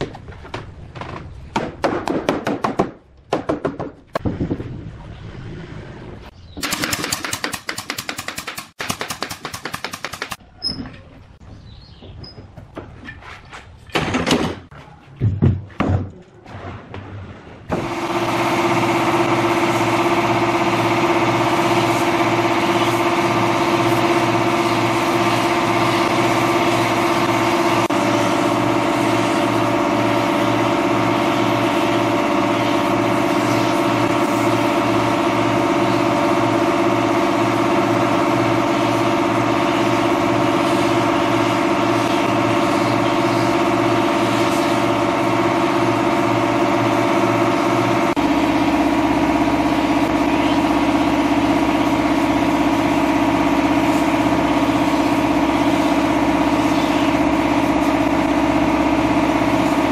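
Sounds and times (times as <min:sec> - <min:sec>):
air compressor running: 0:17.7 - 0:59.9
spray gun hissing: 0:21.5 - 0:29.7, 0:30.3 - 0:34.7, 0:39.7 - 0:45.0, 0:53.8 - 0:58.1.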